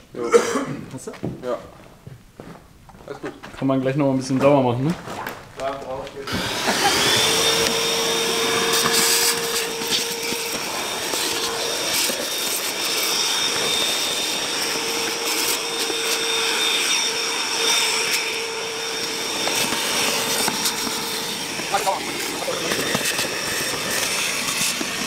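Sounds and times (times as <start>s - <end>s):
vacuum cleaner whining: 6.1s - 25.0s.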